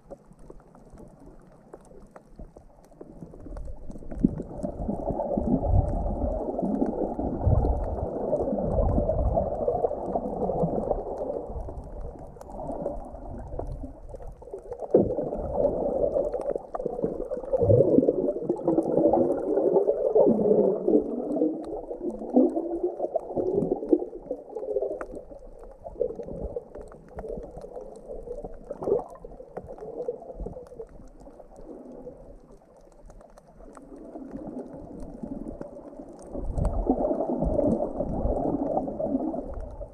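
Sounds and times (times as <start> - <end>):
muffled underwater water sloshing: 0.0 - 39.9.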